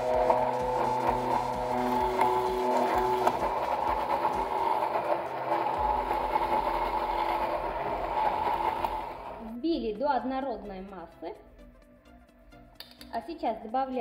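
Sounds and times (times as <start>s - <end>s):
immersion blender running: 0.0s - 9.6s.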